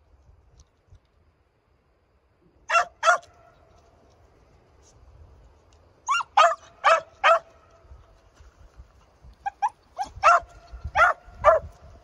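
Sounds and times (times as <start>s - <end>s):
dog barking: 2.7s - 3.3s, 6.1s - 7.5s, 10.0s - 11.7s.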